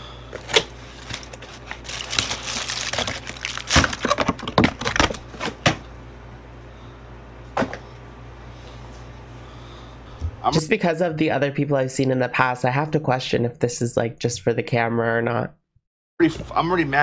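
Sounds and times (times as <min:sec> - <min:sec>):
foil wrapper crinkling: 0:00.3 - 0:05.6.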